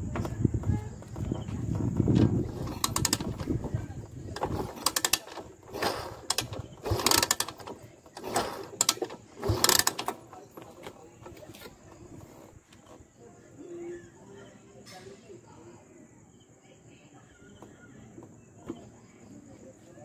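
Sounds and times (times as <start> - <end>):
kick gear ratcheting: 1.7 - 12.2
engine turning over: 2.1 - 12.5.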